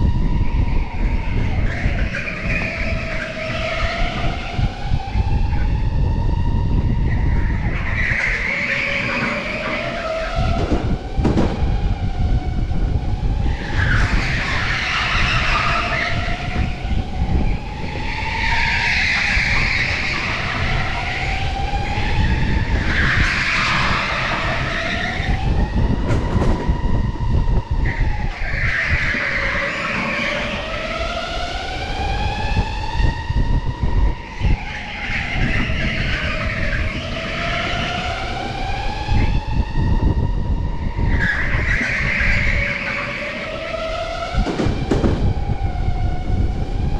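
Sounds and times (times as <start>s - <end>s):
tyres squealing: 27.9s - 31.5s.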